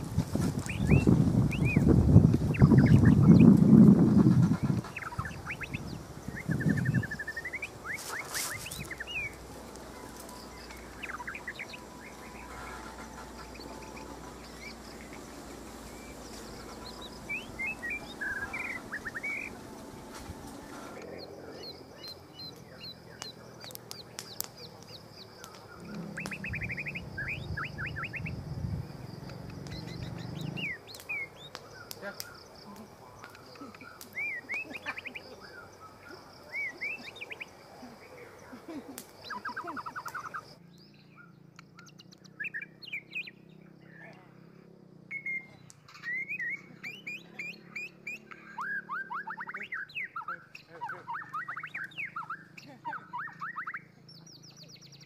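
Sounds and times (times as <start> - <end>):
low rumbling: 0.0 - 7.9, 8.6 - 32.0
wild birds chirping: 0.0 - 55.0.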